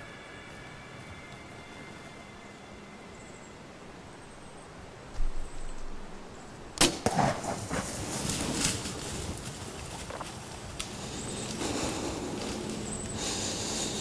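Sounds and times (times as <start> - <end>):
sharp crack of arrow hit: 6.8 - 8.0
bear crashing through brush: 6.8 - 11.0.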